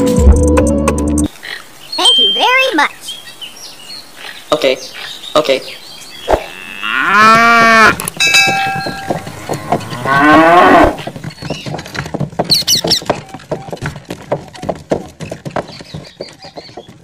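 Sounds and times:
cow mooing: 6.4s - 11.0s.

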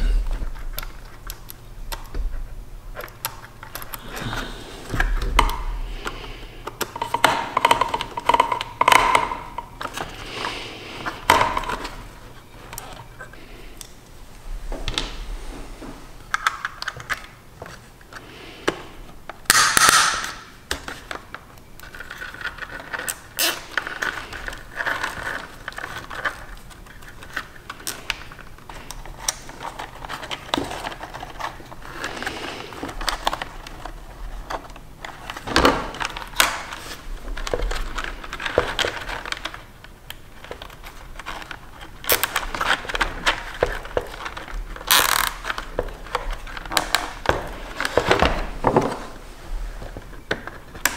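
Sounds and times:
wires rustling against plastic: 0.0s - 19.5s, 20.1s - 50.9s.

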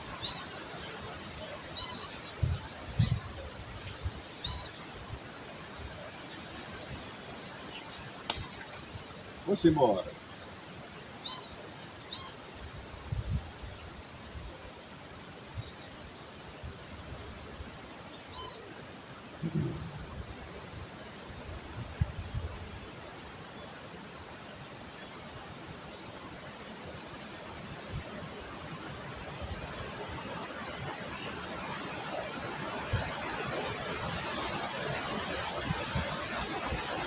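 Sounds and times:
wind rushing across microphone: 1.8s - 5.3s, 12.6s - 14.6s, 19.4s - 23.0s.

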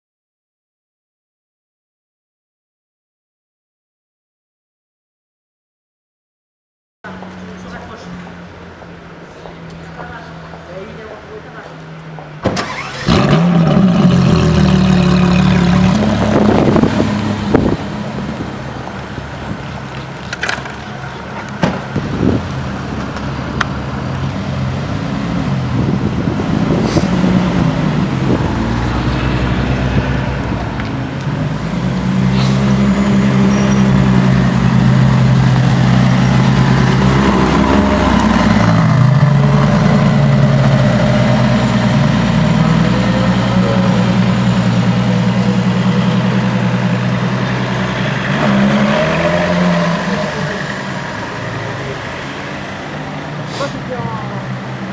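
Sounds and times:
car engine starting and revving: 12.4s - 20.8s, 21.9s - 54.9s.

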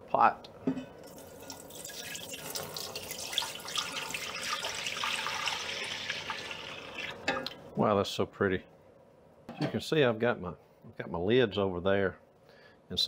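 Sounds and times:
juice pouring into a pot: 1.0s - 7.3s.

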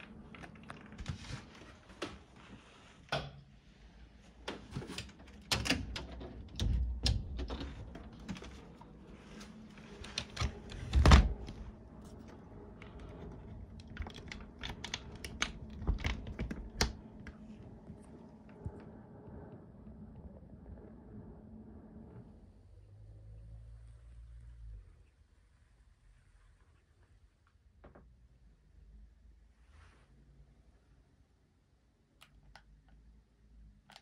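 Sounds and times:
metal latch clicking and rattling: 5.0s - 8.6s
wooden door clicks and knocks: 5.3s - 8.6s, 10.2s - 11.7s.

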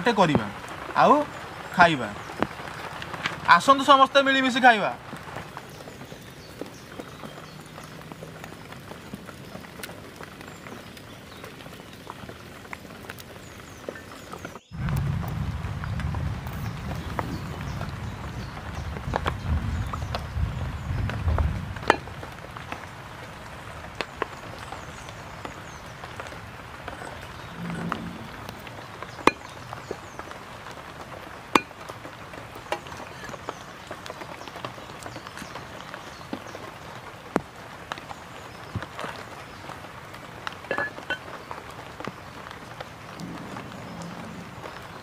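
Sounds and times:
steady background hiss: 0.0s - 9.0s
water splashing on wood: 0.0s - 45.0s.

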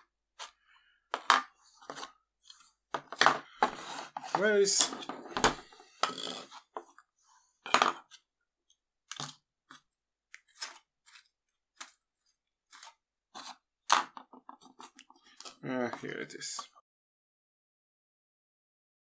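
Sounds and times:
tools clicking and knocking on wood: 1.1s - 7.0s, 13.9s - 16.1s.

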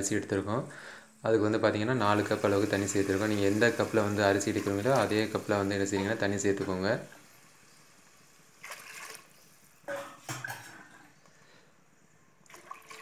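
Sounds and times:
liquid sloshing in a pot: 8.6s - 9.6s, 12.5s - 13.0s.

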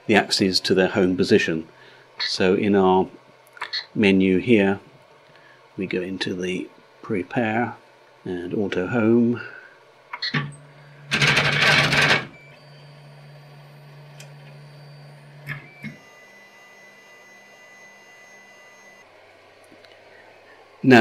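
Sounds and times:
motor hum and whine: 0.0s - 21.0s
stepper motors rattling: 11.1s - 18.3s
clicks: 15.4s - 16.0s.

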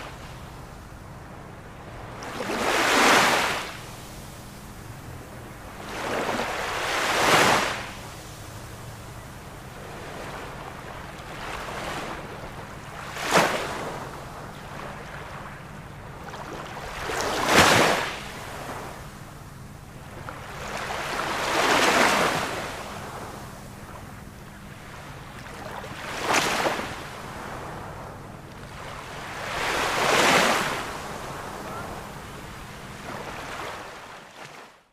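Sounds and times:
sea waves breaking: 0.0s - 34.8s.

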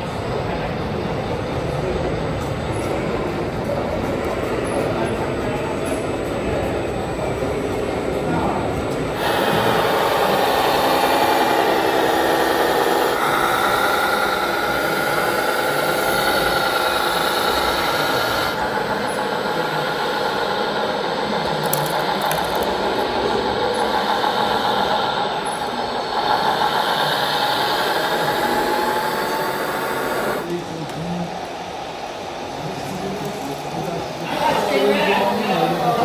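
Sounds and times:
rattling mechanical noise: 2.4s - 30.5s
whine of small motors and gears: 9.2s - 30.4s.

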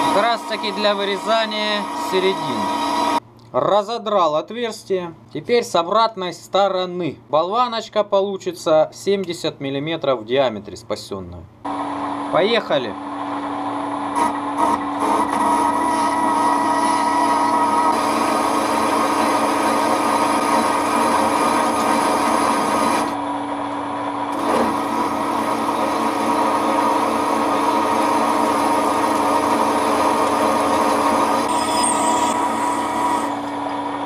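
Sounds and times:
lathe cutting metal: 0.0s - 3.2s, 13.2s - 23.2s, 24.3s - 34.0s
lathe machine whine: 0.0s - 3.2s, 11.7s - 12.4s, 13.0s - 34.0s.

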